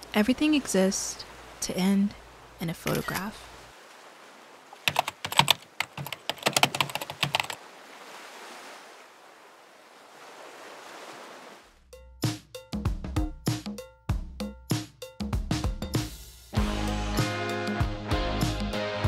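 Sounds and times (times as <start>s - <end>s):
ocean surf rushing: 3.3s - 11.7s
computer keyboard typing: 4.9s - 7.6s
music with sharp drum hits: 12.0s - 18.9s.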